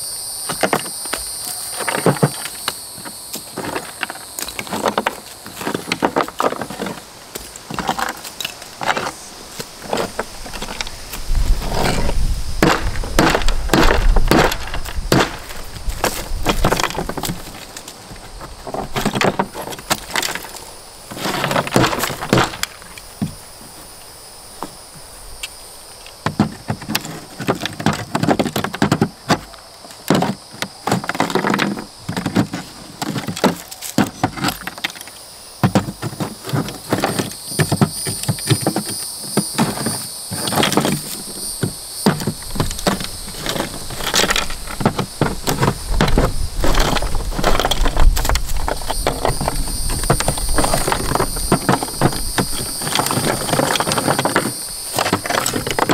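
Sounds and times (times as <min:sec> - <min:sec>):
chunks clattering: 0:00.5 - 0:25.2, 0:26.0 - 0:55.9
mortar knocking and crunching: 0:11.6 - 0:23.4, 0:26.2 - 0:35.0, 0:35.6 - 0:55.9.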